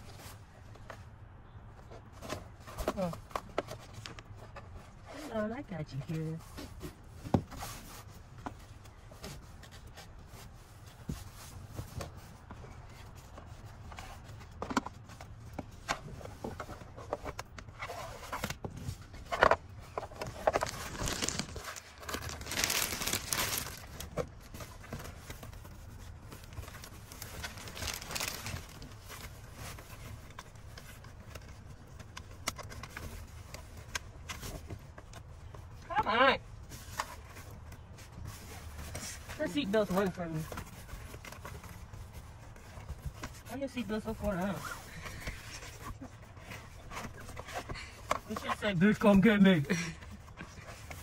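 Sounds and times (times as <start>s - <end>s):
plastic bag crinkling: 20.2s - 24.5s, 26.4s - 29.3s.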